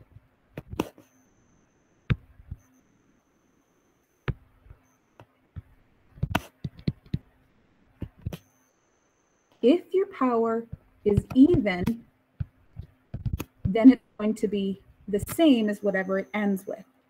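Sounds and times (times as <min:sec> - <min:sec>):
stylus tapping on tablet screen: 0:02.1 - 0:02.7, 0:04.2 - 0:07.3, 0:08.0 - 0:08.5, 0:10.7 - 0:13.9.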